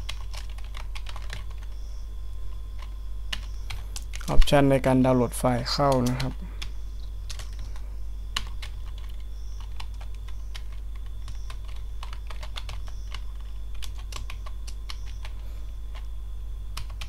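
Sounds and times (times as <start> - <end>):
steady low hum: 0.0 - 17.0
keyboard keystroke clicks: 16.8 - 17.0.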